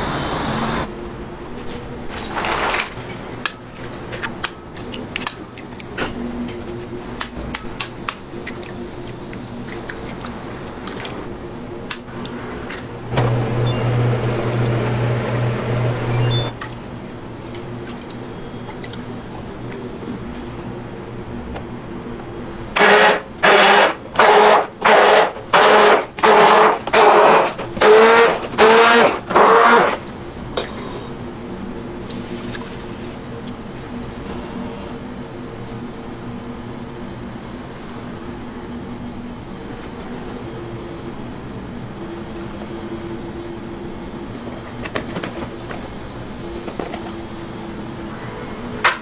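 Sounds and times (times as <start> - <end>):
blender motor whirring in bursts: 22.8 - 30.0.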